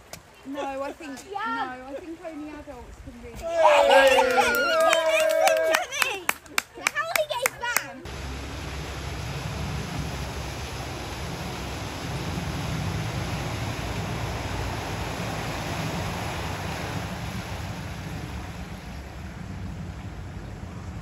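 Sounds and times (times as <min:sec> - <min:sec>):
water washing ahead of car: 0:07.0 - 0:21.0
low engine rumble: 0:08.0 - 0:21.0.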